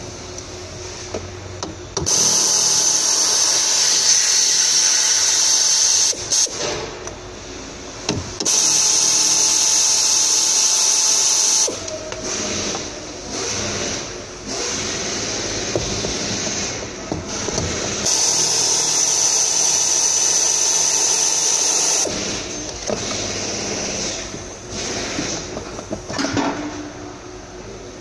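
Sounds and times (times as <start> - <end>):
power tool whine: 2.1 - 6.2, 17.5 - 25.3.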